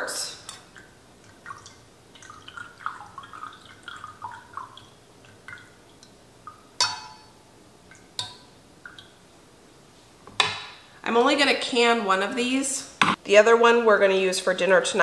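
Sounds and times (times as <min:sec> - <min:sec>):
juice dripping into a funnel: 0:00.5 - 0:06.8.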